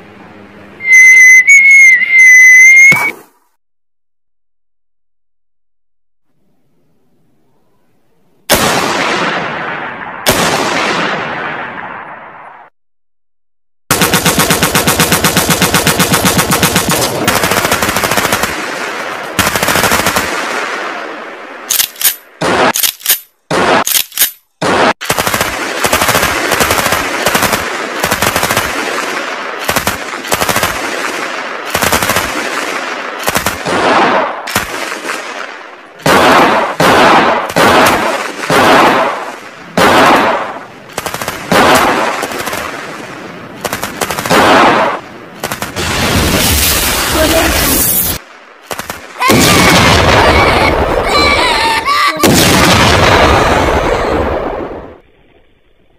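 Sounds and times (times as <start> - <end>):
machine-gun fire: 8.5 - 12.3, 13.9 - 22.9, 24.6 - 47.8, 48.6 - 51.0, 52.2 - 54.7
single gunshots: 8.5 - 12.7, 22.4 - 22.8, 23.5 - 23.9, 28.6 - 50.4, 52.2 - 54.8.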